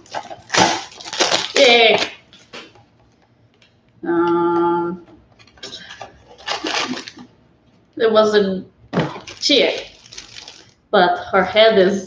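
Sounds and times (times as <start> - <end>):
plastic packaging crinkling: 0.0 - 3.2, 5.3 - 7.4, 9.0 - 10.8.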